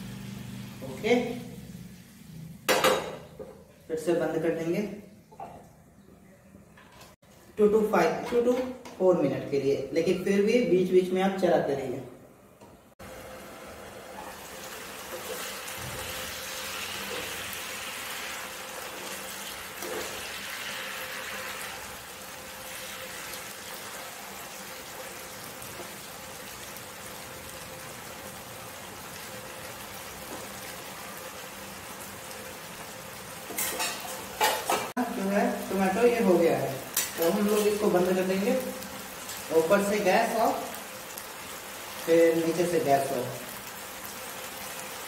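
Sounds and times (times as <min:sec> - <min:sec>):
curry sizzling in a frying pan: 0:00.0 - 0:03.4, 0:13.0 - 0:45.0.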